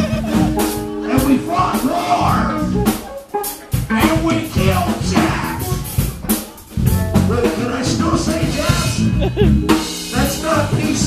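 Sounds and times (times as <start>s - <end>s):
bass guitar: 0.0s - 11.0s
drum kit: 0.0s - 11.0s
electric guitar: 0.0s - 11.0s
man singing into a microphone: 10.1s - 11.0s.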